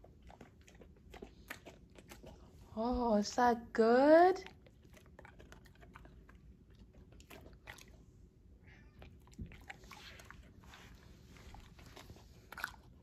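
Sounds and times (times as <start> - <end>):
dog crunching biscuits: 0.0 - 2.8, 4.4 - 8.0, 9.0 - 13.0.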